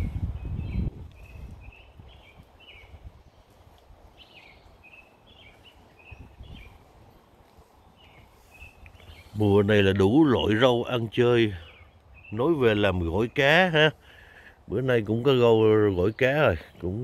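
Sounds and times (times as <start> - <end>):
low rumble on microphone: 0.0 - 4.8, 5.4 - 9.9
small bird chirping: 0.0 - 9.7.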